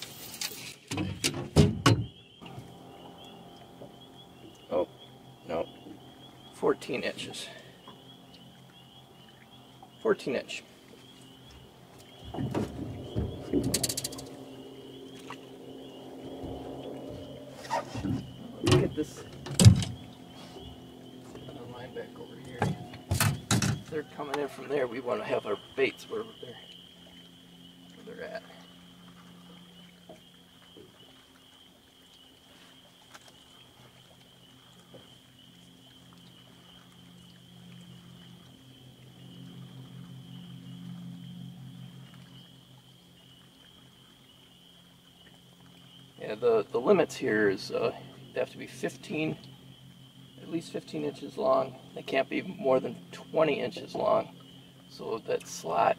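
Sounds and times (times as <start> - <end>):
faint steady hum: 0.0 - 55.9
high-pitched animal chorus: 11.4 - 23.1.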